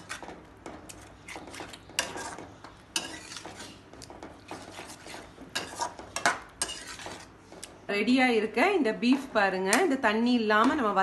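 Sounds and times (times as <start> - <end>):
metal spoon scraping a pan: 0.9 - 3.8, 4.4 - 7.4.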